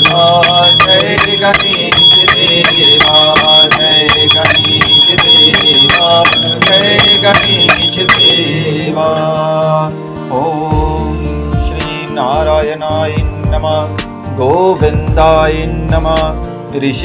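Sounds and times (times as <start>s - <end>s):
small bell ringing rapidly: 0.0s - 8.8s
devotional music: 0.0s - 17.0s.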